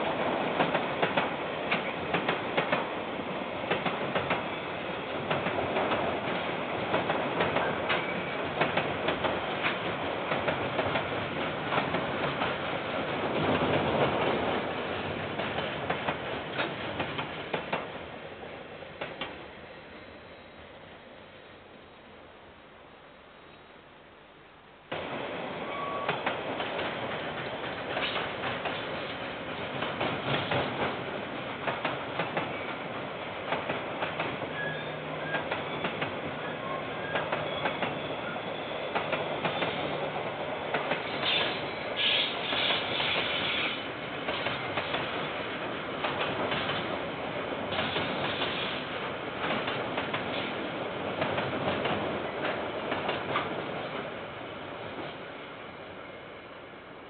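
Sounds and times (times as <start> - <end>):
train rumble: 0.0 - 21.1, 24.8 - 57.0
train wheels clattering over joints: 26.1 - 31.0, 40.7 - 47.0, 47.6 - 50.6.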